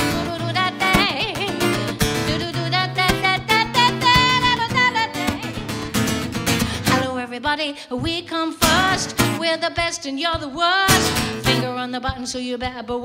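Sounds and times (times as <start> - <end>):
strummed acoustic guitar: 0.0 - 7.3, 8.6 - 9.4, 10.9 - 11.8
bass and beat: 10.3 - 13.0.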